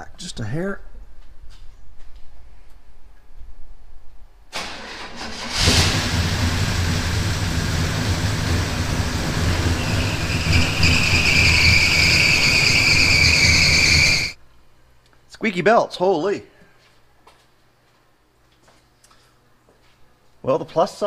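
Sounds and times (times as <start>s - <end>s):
car engine cranking and running: 4.6s - 14.4s
drive belts squealing: 7.7s - 14.4s.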